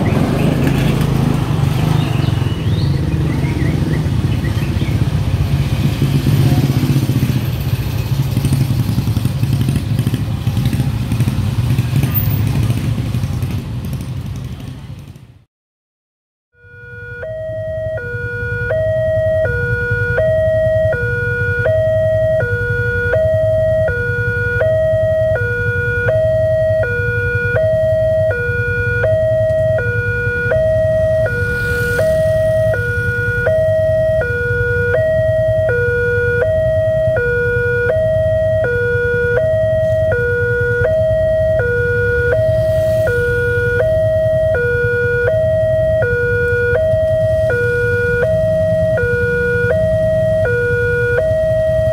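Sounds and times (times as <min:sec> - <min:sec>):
two-tone level crossing alarm: 0:16.6 - 0:51.9.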